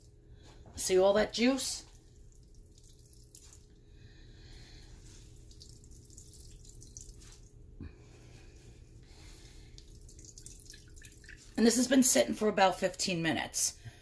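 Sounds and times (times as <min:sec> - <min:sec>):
juice dripping into a bowl: 0:01.8 - 0:04.0, 0:05.0 - 0:07.8, 0:09.6 - 0:11.6.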